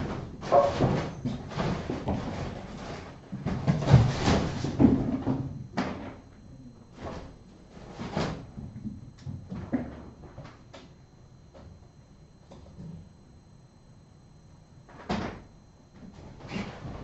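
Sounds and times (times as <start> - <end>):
kittens knocking and scuffling: 0.0 - 6.2.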